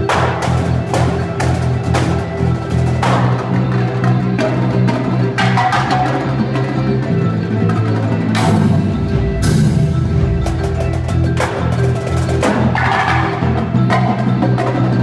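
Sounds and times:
marching drums: 0.0 - 15.0
marimba: 0.0 - 15.0.

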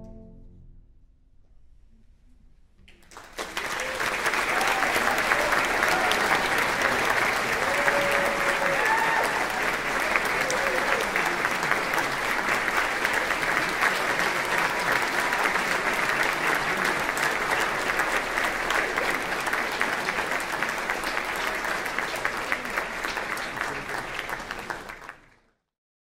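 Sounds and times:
audience applauding: 2.9 - 25.5.

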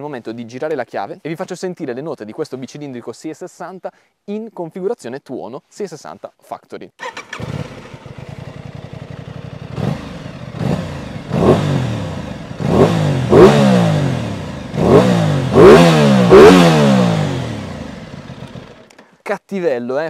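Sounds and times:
motorcycle engine revving: 7.0 - 19.0.

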